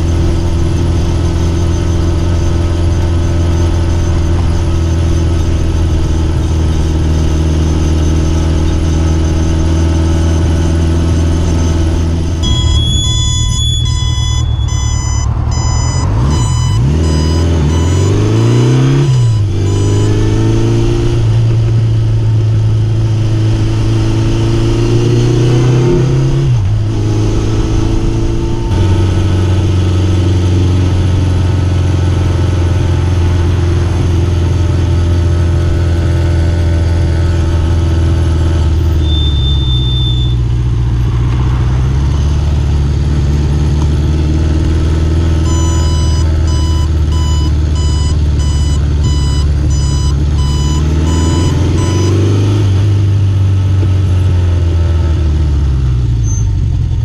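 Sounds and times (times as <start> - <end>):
motorcycle engine accelerating: 0.0 - 57.0.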